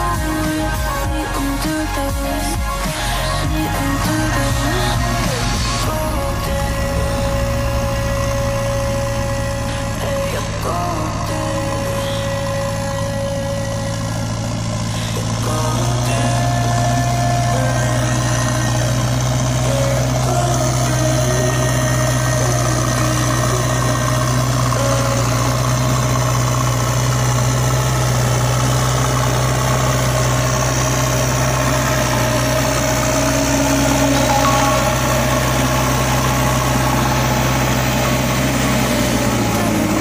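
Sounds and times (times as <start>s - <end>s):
low engine-like drone: 0.0s - 40.0s.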